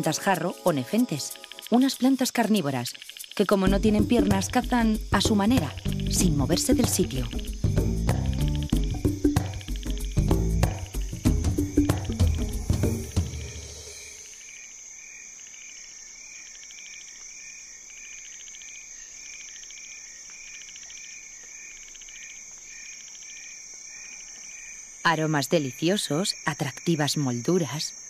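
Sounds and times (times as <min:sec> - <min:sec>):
insects and frogs calling: 0:00.0 - 0:28.0
music cue: 0:05.2 - 0:14.4.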